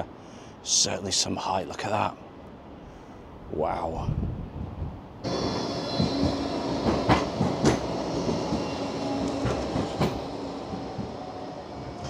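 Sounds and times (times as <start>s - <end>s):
tram running hum: 1.8s - 12.0s
wheels clacking over rails: 5.3s - 12.0s.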